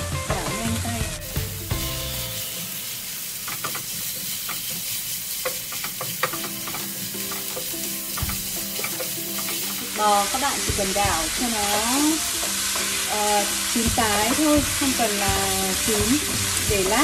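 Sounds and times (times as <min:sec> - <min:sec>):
food sizzling in frying pan: 0:00.0 - 0:17.0
tongs clicking against pan: 0:03.4 - 0:10.4.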